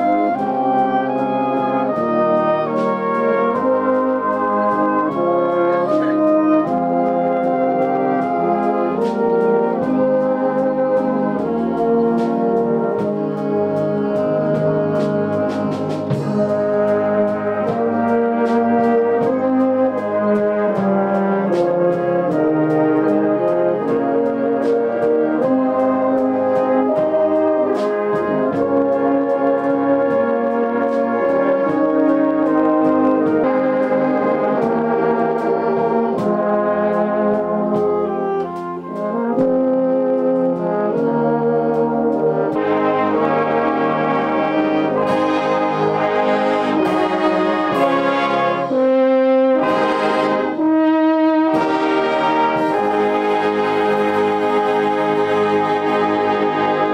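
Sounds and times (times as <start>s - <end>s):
brass band playing chords: 0.0s - 56.9s
percussion beat: 13.0s - 22.6s, 41.8s - 50.7s, 51.5s - 56.9s.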